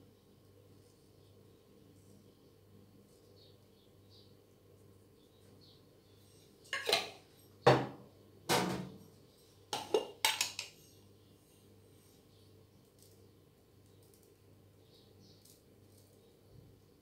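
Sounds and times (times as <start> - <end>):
glass jars knocking on countertop: 7.7 - 8.9.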